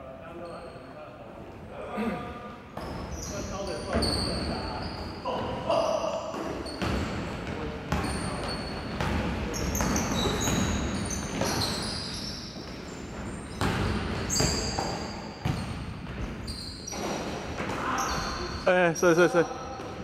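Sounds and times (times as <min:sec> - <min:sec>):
sneakers squeaking: 0:00.2 - 0:01.1, 0:02.6 - 0:20.0
basketball bouncing on wooden court: 0:06.7 - 0:11.9, 0:12.6 - 0:18.3.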